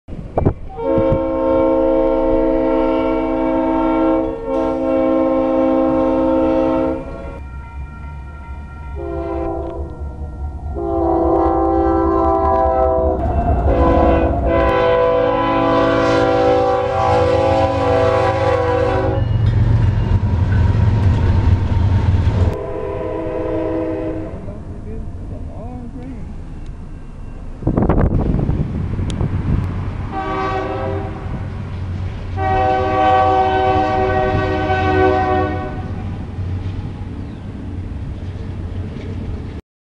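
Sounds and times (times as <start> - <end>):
low rumble of passing train: 0.1 - 39.6
locomotive air horn blasts: 0.7 - 19.4, 22.4 - 24.5, 30.1 - 31.5, 32.4 - 36.1.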